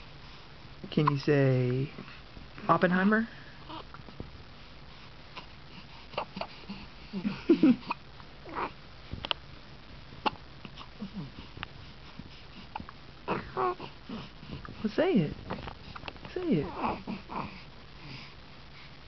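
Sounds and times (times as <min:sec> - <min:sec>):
baby grunting and cooing: 0:06.2 - 0:08.8, 0:12.8 - 0:14.3, 0:16.6 - 0:17.6.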